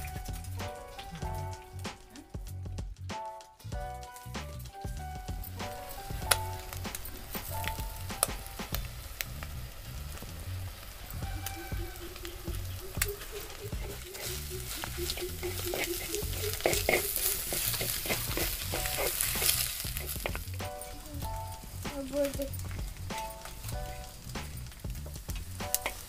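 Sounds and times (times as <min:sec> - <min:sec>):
eggs sizzling in a pan: 0:00.0 - 0:03.0, 0:03.6 - 0:26.0
spatula scraping a pan: 0:13.2 - 0:20.8.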